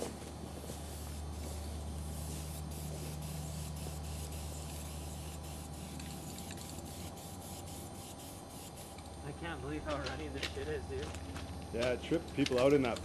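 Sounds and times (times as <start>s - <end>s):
steady low hum: 0.0s - 13.0s
spray paint can hissing: 0.5s - 9.2s.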